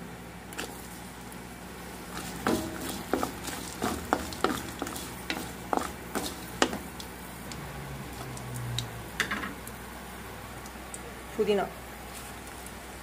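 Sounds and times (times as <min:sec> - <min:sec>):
spices frying in oil: 0:00.5 - 0:13.0
wooden spatula scraping a pan: 0:02.0 - 0:07.0.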